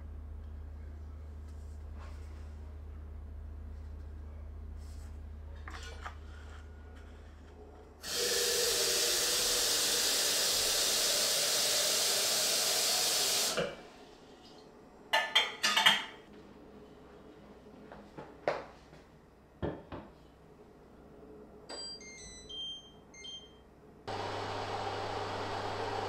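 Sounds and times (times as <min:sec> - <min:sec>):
tap water running: 0:08.0 - 0:13.8.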